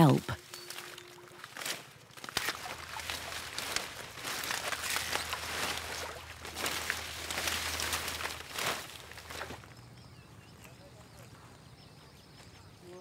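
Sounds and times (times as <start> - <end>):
leaves and stems rustling: 0.0 - 9.9
water dripping off plants: 2.2 - 9.6.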